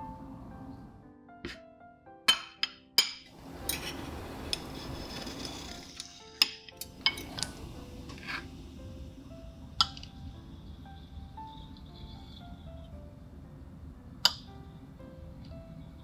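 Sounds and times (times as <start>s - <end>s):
soft background music: 0.0s - 16.0s
metal utensils clinking on plate: 2.3s - 8.5s
utensil scraping plate: 3.6s - 6.4s, 7.0s - 8.5s, 10.6s - 12.9s.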